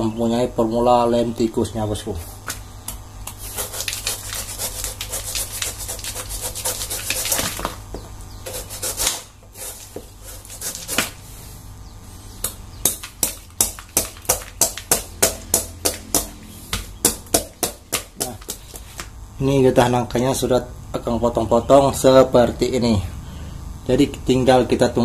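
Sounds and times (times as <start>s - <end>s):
knife scraping fruit skin: 3.2s - 7.7s, 8.4s - 11.2s.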